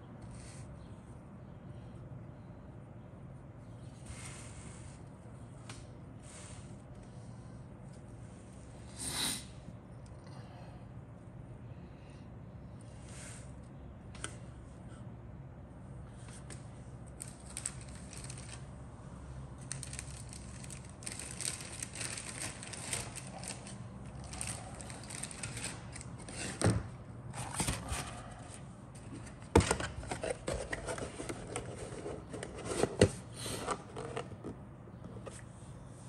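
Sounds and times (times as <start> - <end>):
plastic parts scraping and rustling: 19.6 - 35.4.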